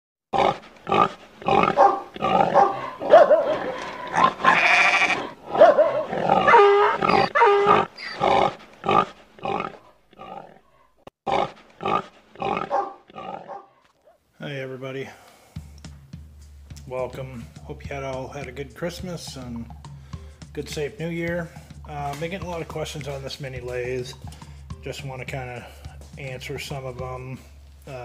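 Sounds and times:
pig grunts and oinks: 0:00.4 - 0:13.9
wavering animal calls: 0:00.4 - 0:14.2.

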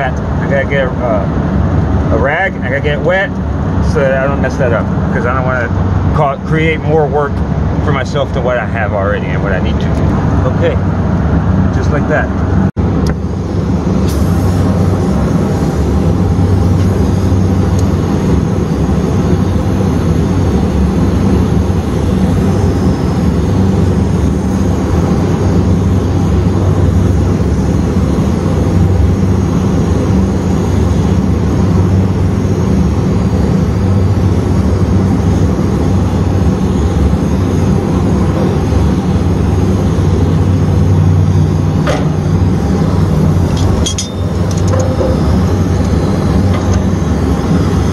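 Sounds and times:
constant low hum: 0:00.0 - 0:47.9
brazing torch flame burning: 0:12.9 - 0:47.9.

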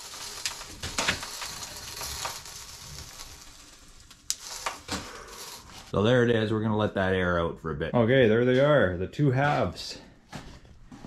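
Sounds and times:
steel shells scraping: 0:00.0 - 0:05.9.

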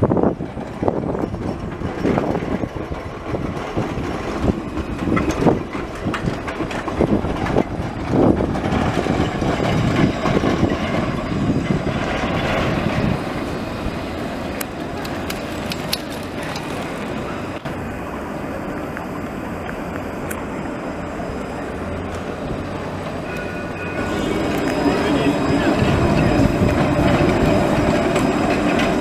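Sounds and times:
tram wheels rumbling on rails: 0:00.0 - 0:29.0
clacks and knocks: 0:00.3 - 0:13.2, 0:23.0 - 0:29.0.

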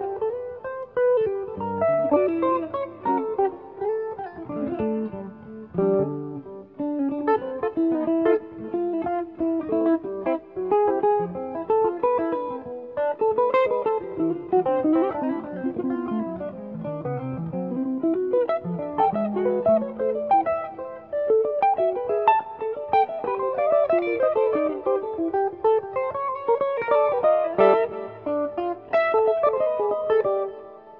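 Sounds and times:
jazz guitar duet: 0:00.0 - 0:30.9.

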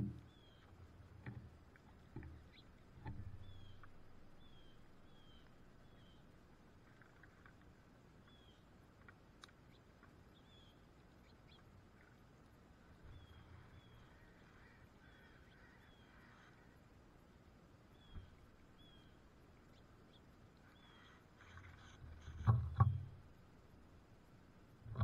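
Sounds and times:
high slurred bird calls: 0:13.0 - 0:16.8, 0:17.9 - 0:22.3.

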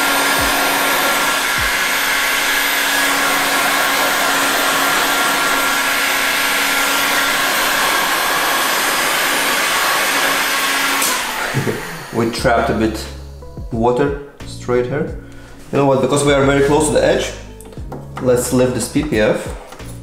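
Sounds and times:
heat gun blowing air: 0:00.0 - 0:12.4.

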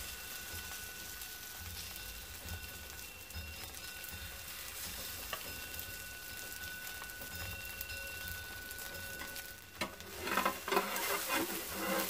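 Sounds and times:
food sizzling in oil: 0:00.0 - 0:12.0
spatula knocking and scraping pan: 0:09.2 - 0:12.0.

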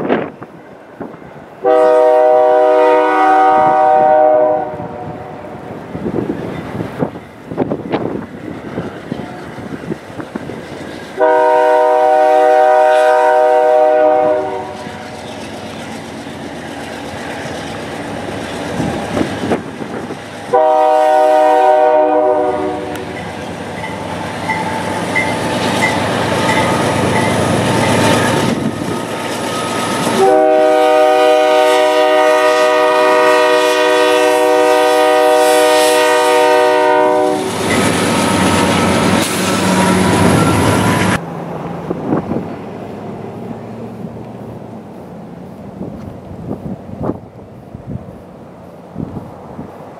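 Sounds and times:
freight train rumble and clatter: 0:00.0 - 0:49.9
locomotive horn blasts: 0:01.6 - 0:05.6, 0:11.2 - 0:15.1, 0:20.5 - 0:23.2, 0:30.1 - 0:37.6.

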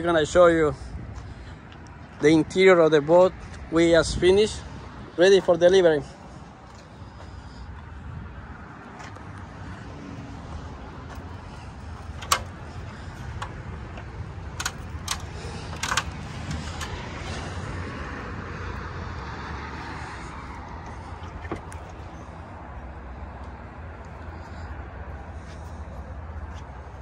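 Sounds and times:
distant road traffic: 0:00.0 - 0:27.0
sharp clicks: 0:12.0 - 0:17.0.

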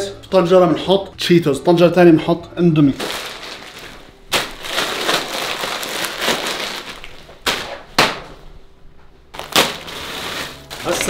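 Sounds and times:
plastic bag crinkling: 0:03.0 - 0:07.7, 0:09.4 - 0:11.0.

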